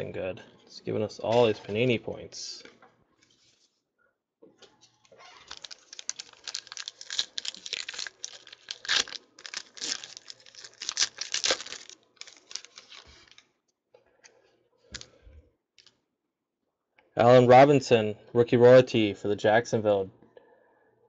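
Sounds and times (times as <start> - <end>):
foil wrapper crinkling: 5.1 - 13.5.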